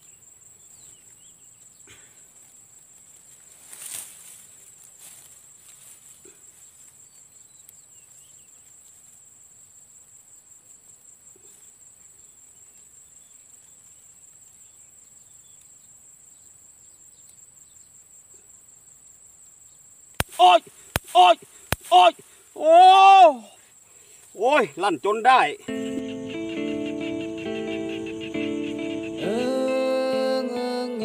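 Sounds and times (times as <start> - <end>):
crickets trilling: 0.0 - 31.0
rustling in dry grass: 1.6 - 9.4.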